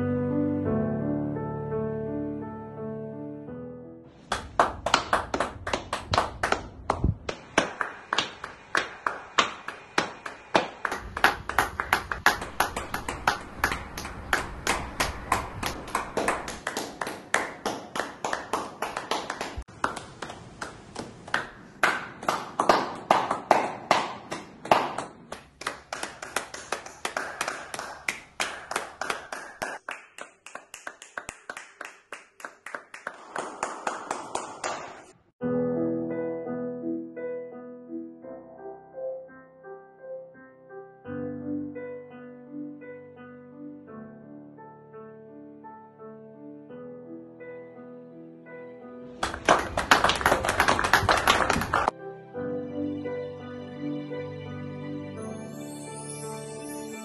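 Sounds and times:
hands clapping: 4.3s - 35.2s, 49.2s - 51.9s.

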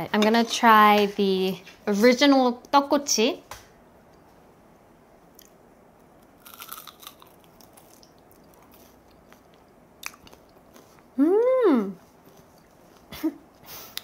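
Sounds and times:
crunchy bite: 6.3s - 9.0s
quiet chewing: 6.4s - 11.2s, 12.0s - 13.1s.

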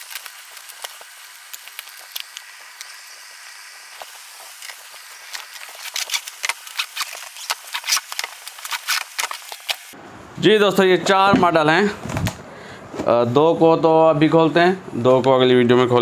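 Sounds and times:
cardboard scraping and crackling: 4.0s - 10.0s.

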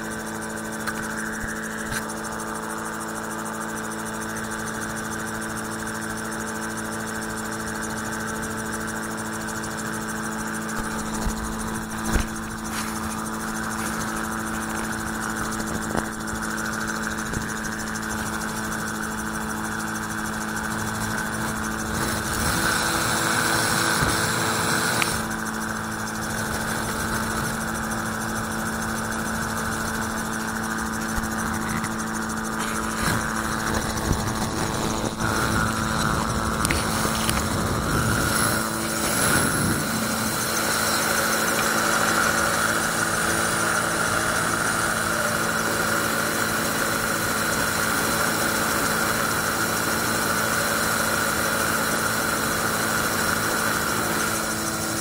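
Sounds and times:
aircraft engine and propeller drone: 0.0s - 55.0s.

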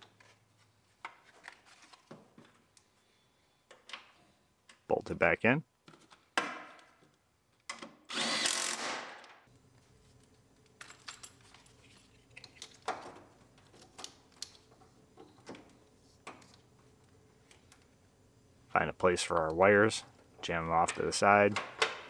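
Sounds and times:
power tool driving a bolt: 8.1s - 9.4s.

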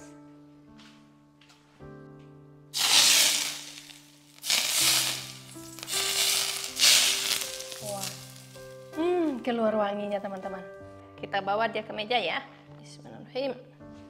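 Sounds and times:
soft instrumental music: 0.0s - 14.0s
hot oil sizzling on food: 2.8s - 8.8s.

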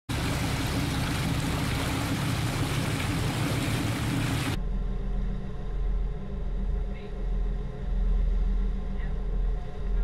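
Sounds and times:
boat engine rumble: 0.0s - 10.0s
water and wind rushing: 0.1s - 4.6s.

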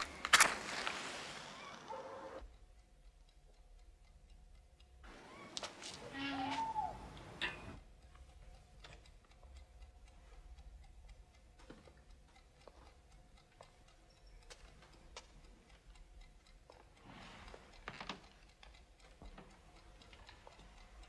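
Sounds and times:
faint clicks: 0.0s - 21.0s.

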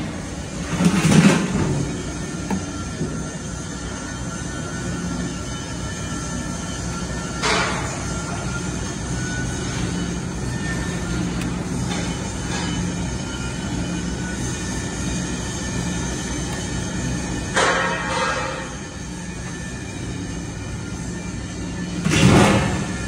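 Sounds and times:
powder mixer hum and rumble: 0.0s - 23.0s.

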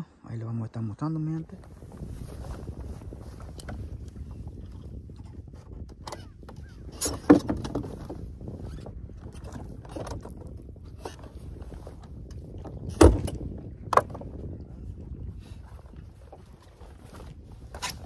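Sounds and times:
gear knocking in a boat: 3.4s - 14.6s.

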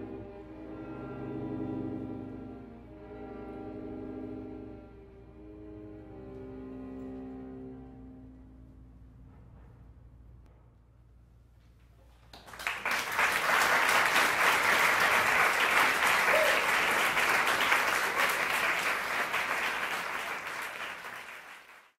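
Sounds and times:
audience applauding: 12.2s - 22.0s.

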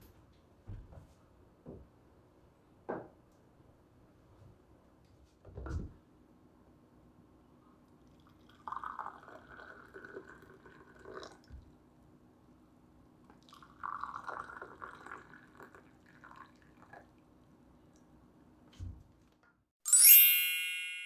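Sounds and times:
tea pouring into porcelain cups: 8.1s - 11.8s, 13.3s - 17.3s.

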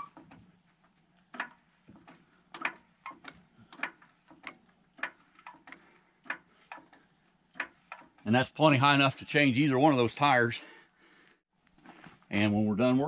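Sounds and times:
floor jack clicking while pumped: 0.0s - 8.3s.

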